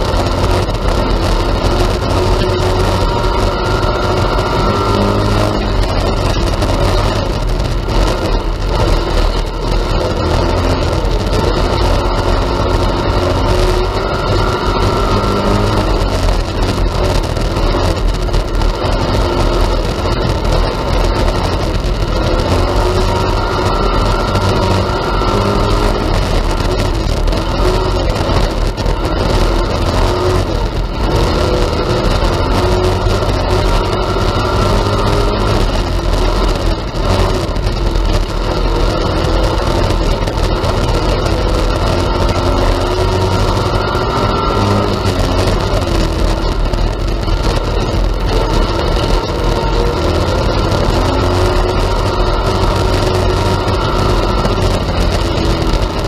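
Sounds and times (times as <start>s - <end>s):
race car engine revving: 0.0s - 56.0s.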